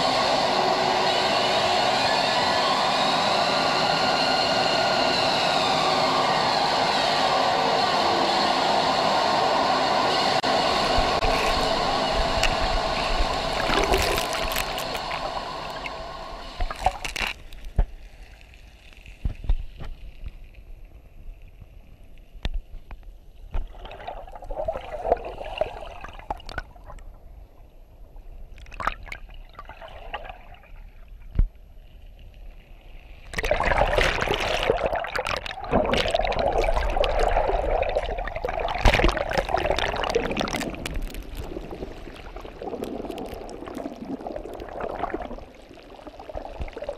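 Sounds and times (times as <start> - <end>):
droning hum: 0.0 - 46.9
underwater water sloshing: 10.6 - 20.6, 23.4 - 46.9.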